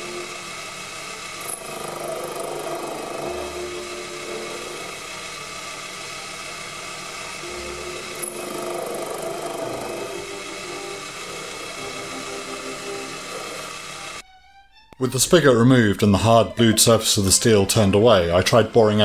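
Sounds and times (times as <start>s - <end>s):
lathe cutting steel: 0.0s - 14.2s.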